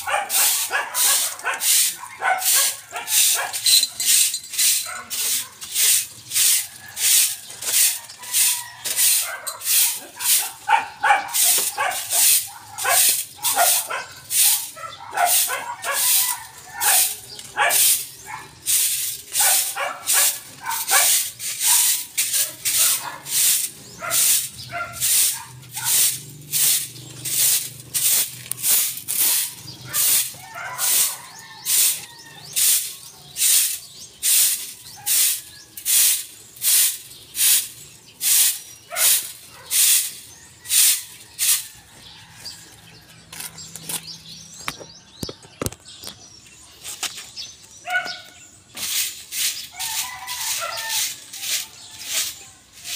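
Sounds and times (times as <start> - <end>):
broom sweeping concrete: 0.0 - 44.9, 46.4 - 52.9.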